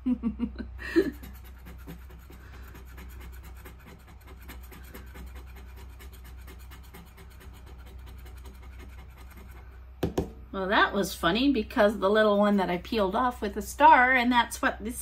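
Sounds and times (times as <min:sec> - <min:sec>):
scratching lottery ticket: 0:01.0 - 0:09.7.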